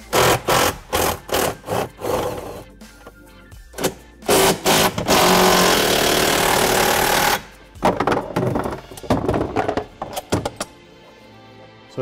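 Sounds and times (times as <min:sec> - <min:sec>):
impact driver hammering: 0:00.0 - 0:01.8, 0:03.8 - 0:07.4.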